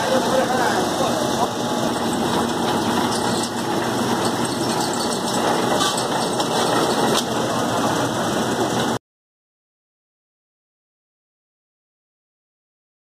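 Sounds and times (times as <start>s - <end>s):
oil press machine running: 0.0s - 9.0s.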